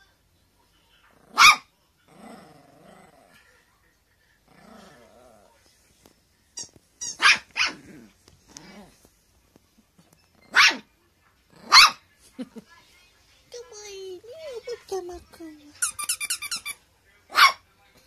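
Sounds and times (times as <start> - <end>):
small dog barking: 1.2 - 1.7, 7.1 - 7.9, 10.4 - 10.9, 11.6 - 12.0, 17.3 - 17.6
dog growling: 2.0 - 3.5, 4.4 - 5.6, 7.7 - 9.0.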